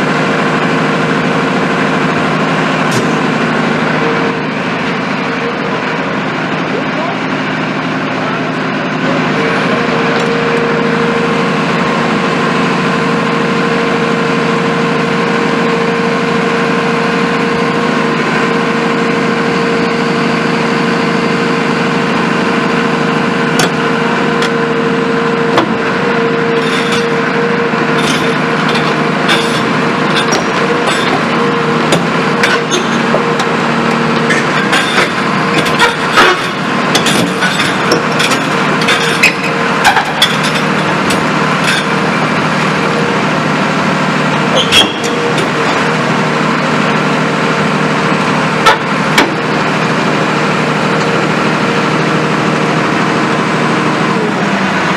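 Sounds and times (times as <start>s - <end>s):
excavator engine and hydraulic drone: 0.0s - 54.9s
steel track plates clanking: 26.6s - 43.1s.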